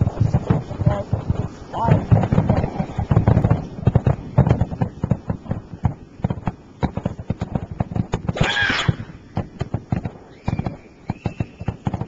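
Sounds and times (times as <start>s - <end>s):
fireworks bangs and crackling: 0.0s - 12.0s.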